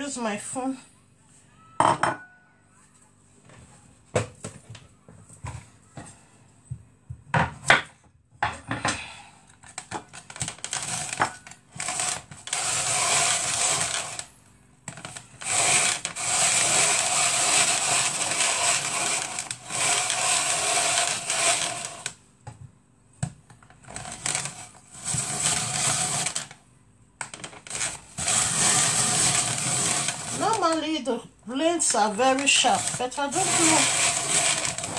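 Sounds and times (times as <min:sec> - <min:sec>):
blender running: 0:10.3 - 0:22.2, 0:23.9 - 0:26.6, 0:27.4 - 0:30.9, 0:31.8 - 0:34.9.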